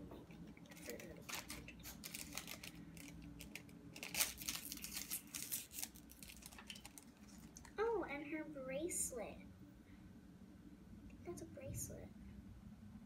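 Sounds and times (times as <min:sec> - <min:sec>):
plastic wrapping crackling: 0:00.3 - 0:07.8.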